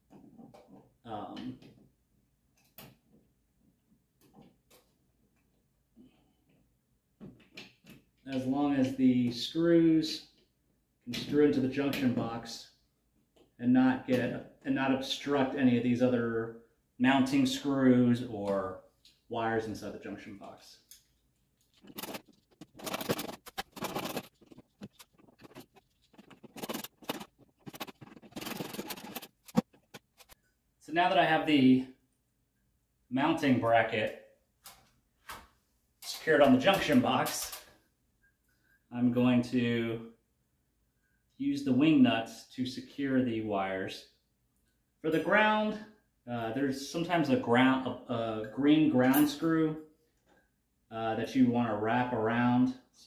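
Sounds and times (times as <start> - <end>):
screwdriver scraping screws: 21.6 - 30.4.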